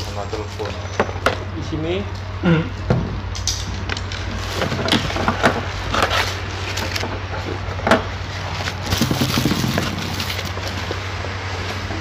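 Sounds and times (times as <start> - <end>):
plastic bag crinkling: 8.7 - 11.0.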